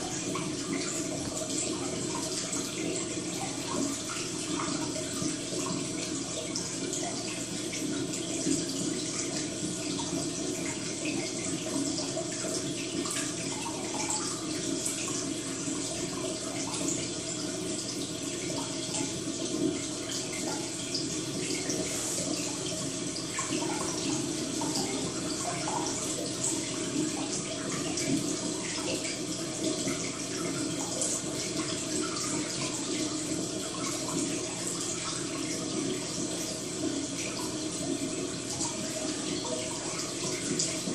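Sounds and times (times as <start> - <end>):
water trickling and splashing: 0.0 - 40.9.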